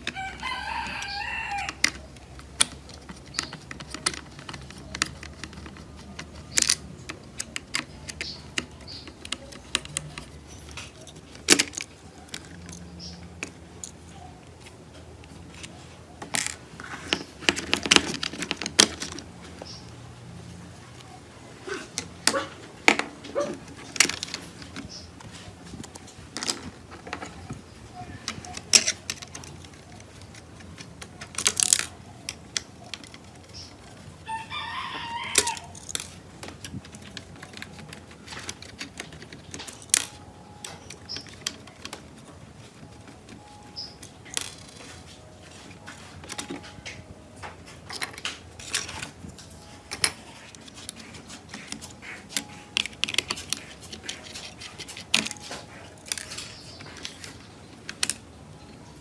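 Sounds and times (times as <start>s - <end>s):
screwdriver turning small screws: 0.0s - 14.1s
plastic parts clicking and knocking: 0.0s - 19.9s, 21.9s - 34.2s, 35.3s - 58.8s.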